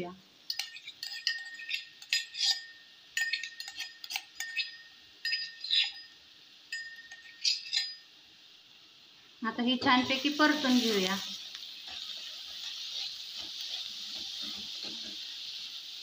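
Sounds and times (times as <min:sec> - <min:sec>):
steel spoon clinking on utensils: 0:00.5 - 0:08.1.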